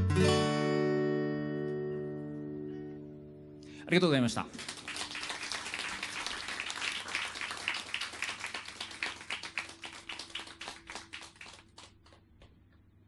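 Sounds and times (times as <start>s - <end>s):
audience clapping: 4.2s - 12.7s.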